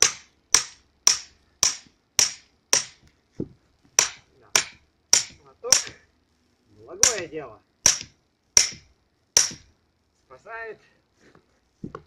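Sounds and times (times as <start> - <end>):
hammer striking axe head: 0.0 - 3.1, 4.0 - 6.0, 7.0 - 9.7.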